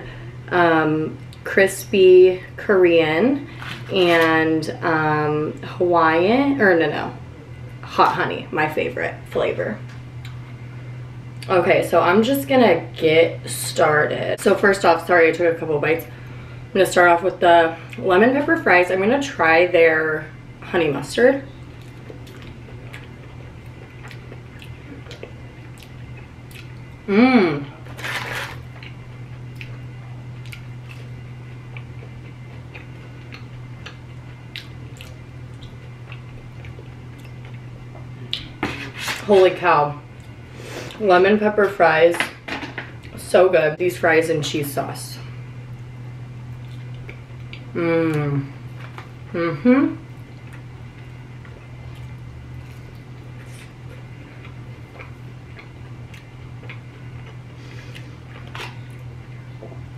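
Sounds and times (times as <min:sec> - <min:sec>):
steady low hum: 0:00.0 - 0:59.9
chewing crunches and mouth clicks: 0:21.7 - 0:27.0, 0:27.8 - 0:38.6, 0:46.5 - 0:47.7, 0:50.1 - 0:59.9.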